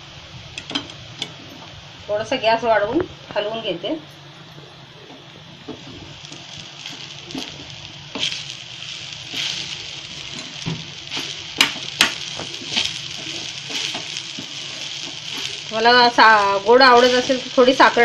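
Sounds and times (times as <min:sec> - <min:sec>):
food sizzling: 0:00.0 - 0:18.0.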